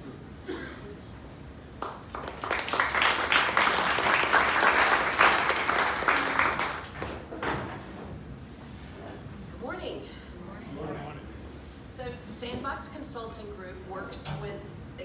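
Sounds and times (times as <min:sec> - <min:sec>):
audience applauding: 0:01.8 - 0:07.3.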